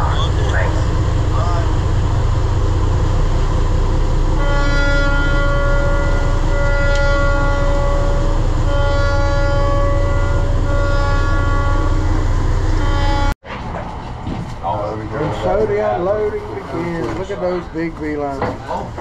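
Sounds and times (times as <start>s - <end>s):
boat engines droning: 0.0s - 13.4s.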